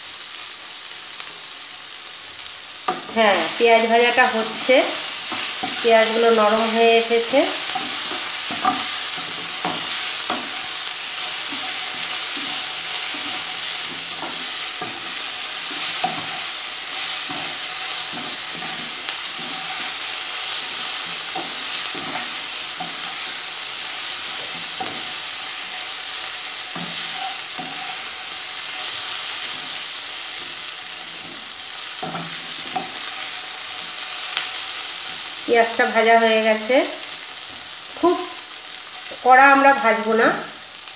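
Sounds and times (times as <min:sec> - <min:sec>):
onions sizzling in a pan: 0:00.0 - 0:40.9
wooden spatula scraping a pan: 0:02.9 - 0:34.2.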